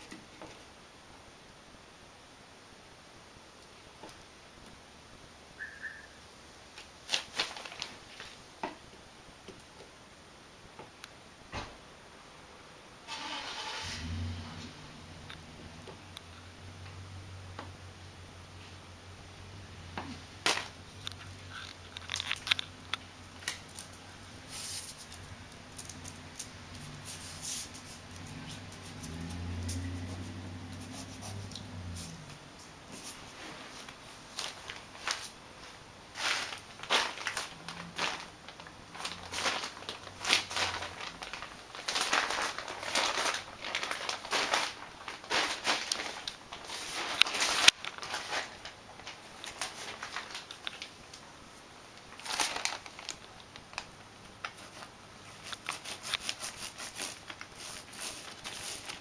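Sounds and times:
plastic sheet crinkling: 0:06.8 - 0:08.5, 0:20.4 - 0:32.1, 0:33.0 - 0:51.2, 0:52.0 - 0:59.0.

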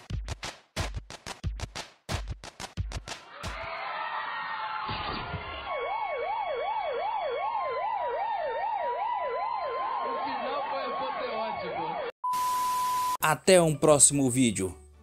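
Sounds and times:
siren yelp: 0:04.6 - 0:13.1
steady held siren tone: 0:05.5 - 0:13.2.

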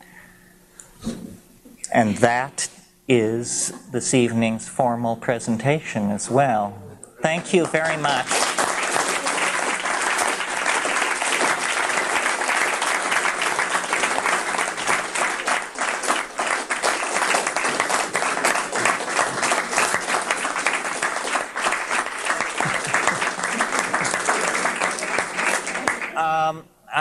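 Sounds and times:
audience applauding: 0:07.2 - 0:26.3.

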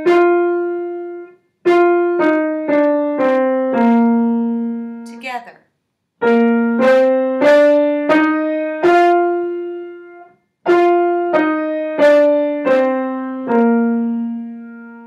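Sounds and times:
piano playing a scale: 0:00.0 - 0:05.4, 0:06.2 - 0:15.0.

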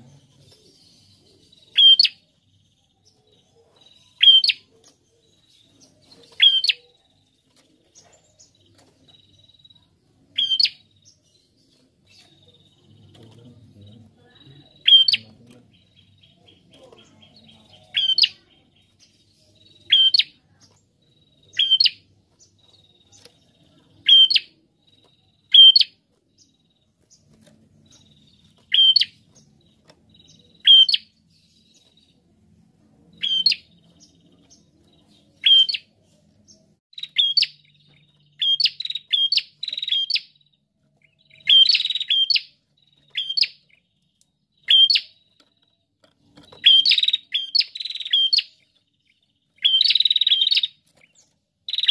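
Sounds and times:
bird calling high sharp notes: 0:01.7 - 0:02.2, 0:04.2 - 0:04.7, 0:06.3 - 0:06.8, 0:10.4 - 0:10.8, 0:30.3 - 0:31.2.

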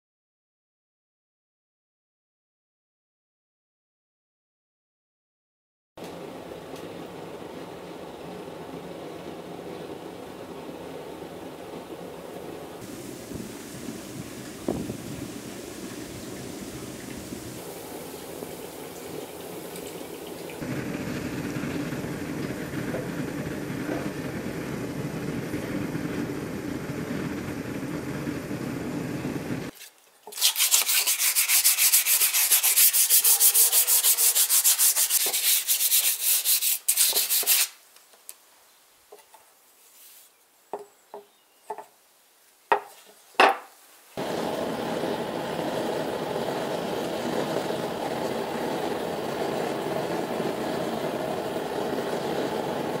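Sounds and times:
steady rushing noise: 0:08.4 - 0:19.2, 0:44.2 - 0:53.0
forge roaring: 0:20.5 - 0:29.7, 0:44.2 - 0:53.0
scrubbing strokes on metal blade: 0:29.7 - 0:37.7.

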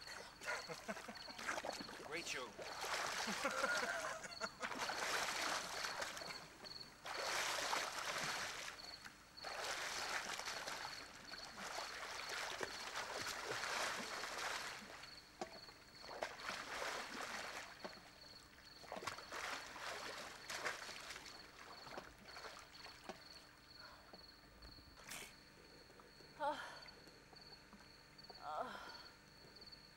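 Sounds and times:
pool water splashing: 0:00.0 - 0:23.7.

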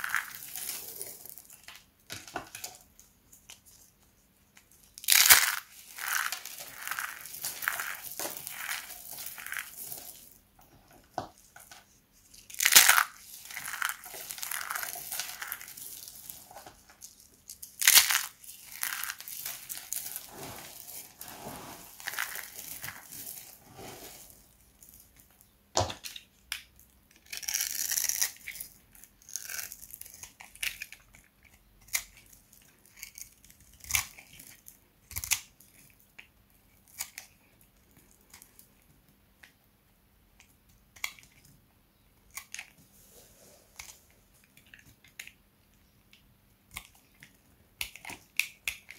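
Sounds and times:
hands crushing dry soap shavings: 0:00.0 - 0:03.7, 0:04.6 - 0:10.4, 0:11.0 - 0:35.9.

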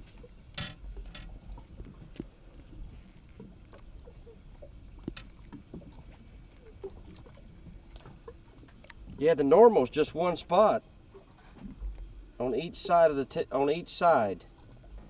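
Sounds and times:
wind and water rumble: 0:00.0 - 0:15.0
fish handling clicks and knocks: 0:00.4 - 0:02.4, 0:05.0 - 0:05.9.

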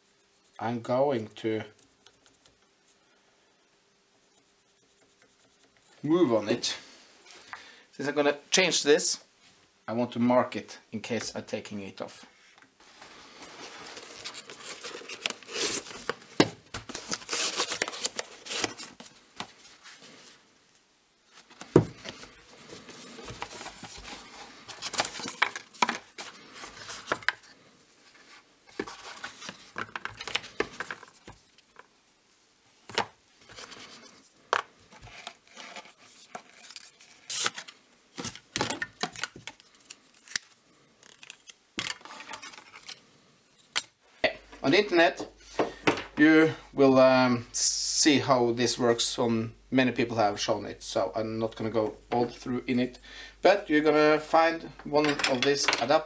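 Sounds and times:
rustling and scraping of packaging: 0:12.8 - 0:20.5, 0:21.3 - 0:31.9, 0:32.9 - 0:43.2.

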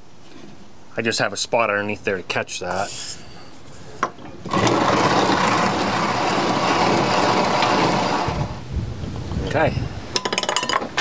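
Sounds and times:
grain mill grinding: 0:04.4 - 0:08.6.

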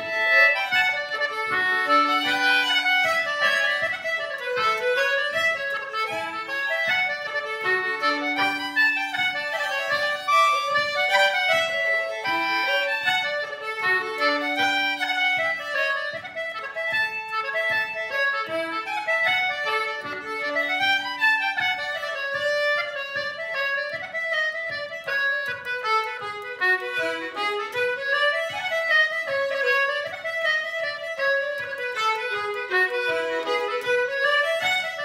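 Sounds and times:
concertina: 0:00.0 - 0:35.0
fiddle: 0:00.0 - 0:35.0.

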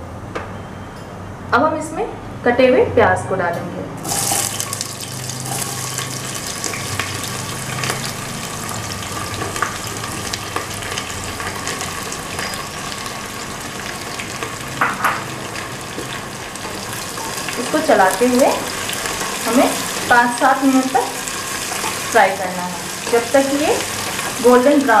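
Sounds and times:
oil crackling and popping: 0:04.0 - 0:20.1
onions sizzling in hot oil: 0:04.0 - 0:25.0.

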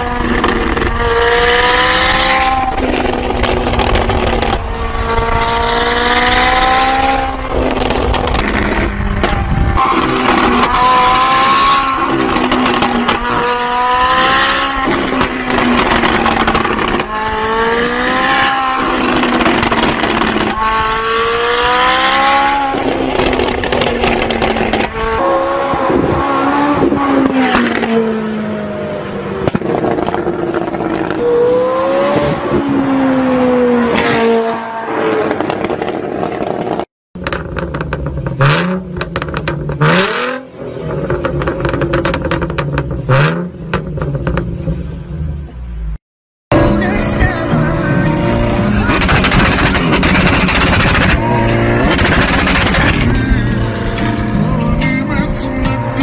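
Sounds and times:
car engine revving: 0:00.0 - 0:45.8, 0:46.5 - 0:56.0
exhaust pops and crackles: 0:00.2 - 0:01.0, 0:02.7 - 0:04.7, 0:07.3 - 0:10.8, 0:12.1 - 0:13.4, 0:14.8 - 0:17.2, 0:18.9 - 0:20.6, 0:22.7 - 0:25.0, 0:29.4 - 0:31.2, 0:35.3 - 0:40.1, 0:40.8 - 0:44.8, 0:48.6 - 0:53.5.

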